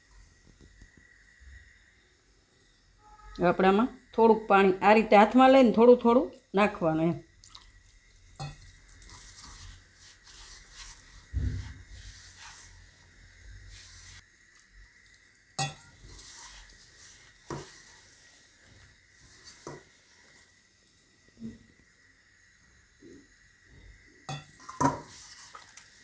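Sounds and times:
hands kneading dough: 8.6 - 14.2, 15.9 - 20.3.

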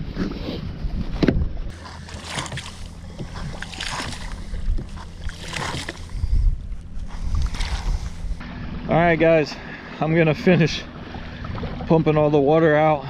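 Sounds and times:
wind rumble on microphone: 0.0 - 9.4
bilge pump swishing and gurgling: 1.7 - 8.4.

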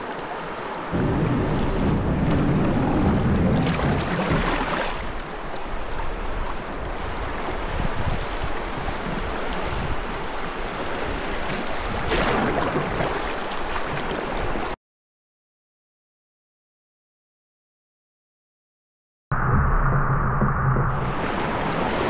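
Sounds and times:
river water rushing and splashing: 0.0 - 14.8, 21.0 - 22.0.

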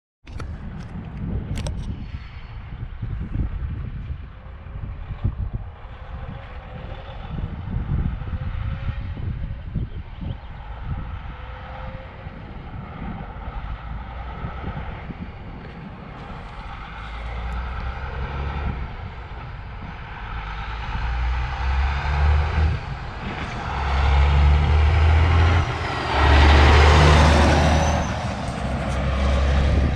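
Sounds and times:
diesel truck driving past: 5.0 - 29.9.

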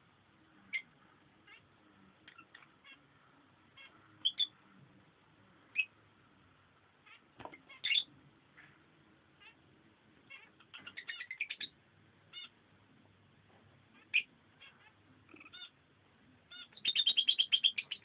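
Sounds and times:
lovebirds chirping and squeaking: 0.7 - 3.1, 3.7 - 4.6, 5.7 - 6.0, 7.0 - 8.2, 10.2 - 12.6, 13.9 - 15.8, 16.5 - 18.0.

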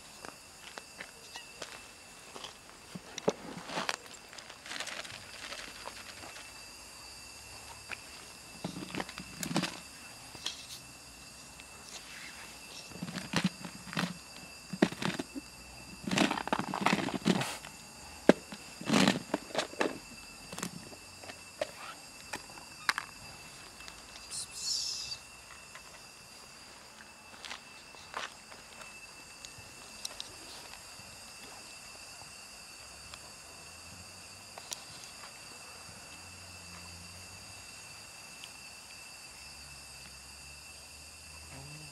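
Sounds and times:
cats crunching kibble: 3.9 - 6.4
high-pitched hum: 41.4 - 41.9.

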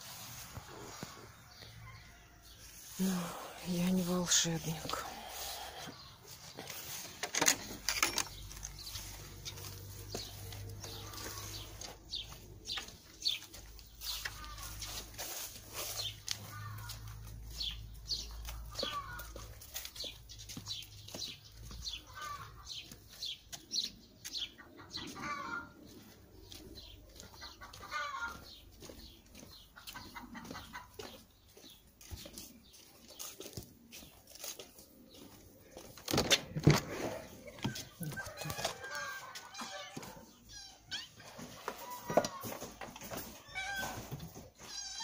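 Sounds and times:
light footsteps: 0.0 - 36.1
animal and bird calls: 0.0 - 45.0.

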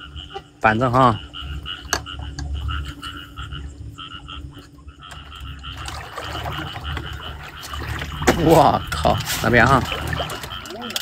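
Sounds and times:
low rumble: 0.0 - 10.5
frogs calling in chorus: 0.0 - 11.0.

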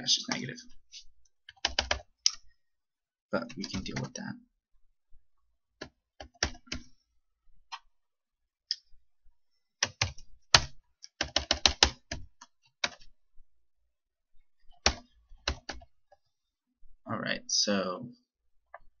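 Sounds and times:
computer keyboard typing: 1.4 - 2.4, 3.5 - 4.1, 5.8 - 6.9, 9.8 - 13.1, 14.7 - 15.9.

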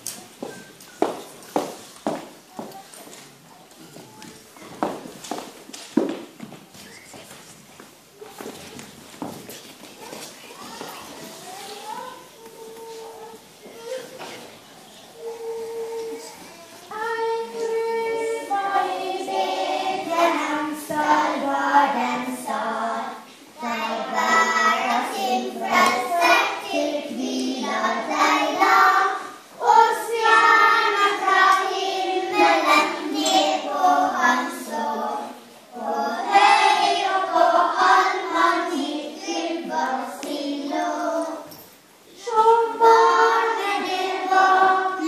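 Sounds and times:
children's choir singing: 11.5 - 45.0.

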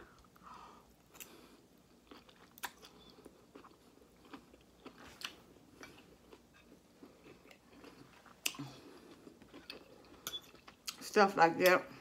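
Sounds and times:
person chewing food: 0.1 - 11.0.

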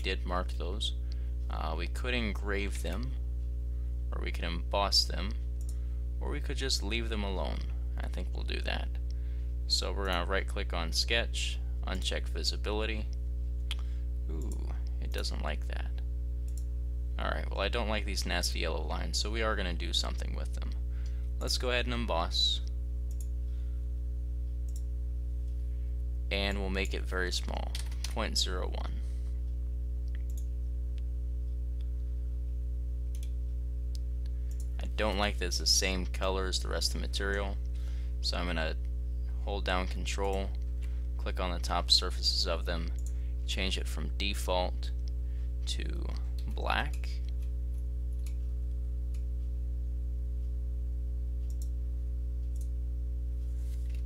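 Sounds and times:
low electrical hum: 0.0 - 54.0
computer mouse clicks: 30.1 - 30.5, 51.5 - 51.7.

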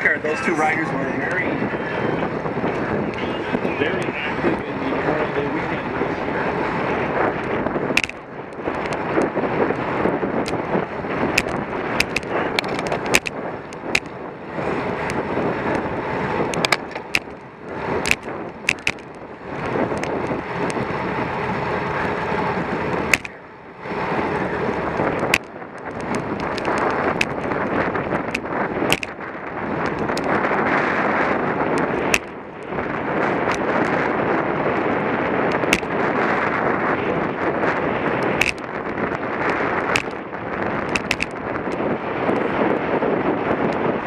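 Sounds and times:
tyre noise on asphalt: 0.0 - 44.0
wind rushing over microphone: 0.0 - 44.0
bicycle clicks and rattles: 6.8 - 22.3, 22.9 - 44.0.

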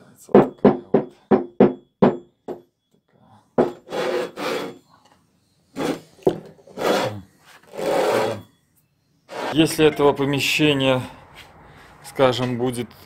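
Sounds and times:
metal knock on wood: 0.4 - 2.7, 3.6 - 3.8
metal scraping on wooden bench: 3.6 - 8.6, 9.3 - 10.2.

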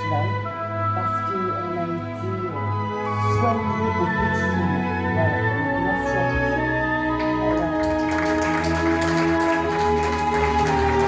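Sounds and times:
light clapping: 7.2 - 11.0.

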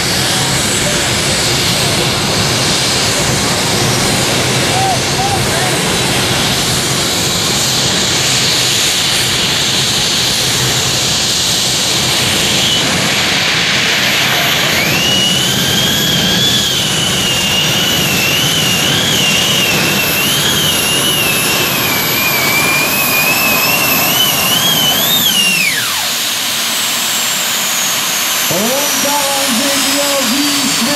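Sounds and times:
gas turbine engines roaring: 0.0 - 30.9
high turbine whine: 0.0 - 30.9.

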